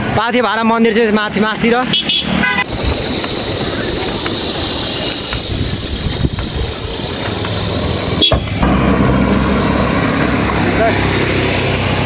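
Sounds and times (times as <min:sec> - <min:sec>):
road traffic: 0:00.0 - 0:12.0
low steady engine hum: 0:02.6 - 0:12.0
wind rushing over microphone: 0:02.6 - 0:12.0.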